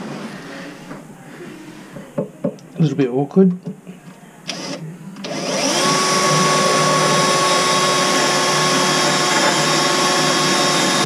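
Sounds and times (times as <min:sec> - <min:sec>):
power drill spinning: 0:04.5 - 0:11.0.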